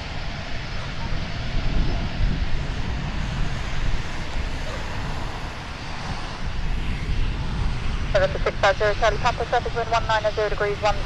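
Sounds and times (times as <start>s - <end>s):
jet engines at taxi power: 0.0s - 11.0s
wind buffeting microphone: 0.0s - 11.0s.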